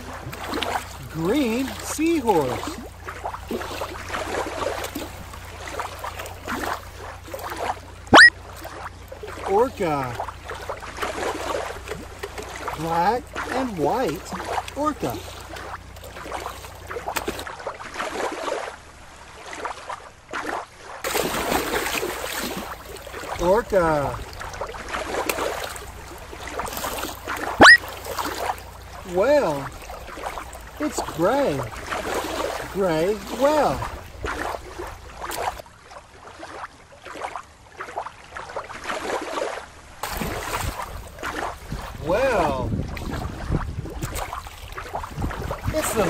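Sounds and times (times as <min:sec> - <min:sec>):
loud splash: 0:00.0 - 0:13.7, 0:19.4 - 0:35.6, 0:36.4 - 0:45.0
shallow water splashing and sloshing: 0:00.0 - 0:46.0.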